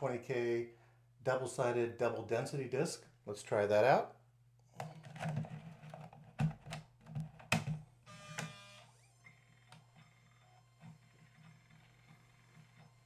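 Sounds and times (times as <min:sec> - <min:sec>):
faint steady whine: 0:08.0 - 0:13.0
drive motor whirring: 0:08.1 - 0:13.0.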